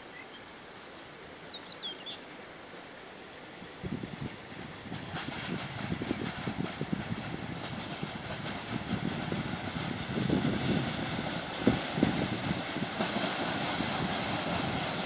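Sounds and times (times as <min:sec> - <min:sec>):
steam locomotive chuffing: 0:04.5 - 0:15.0.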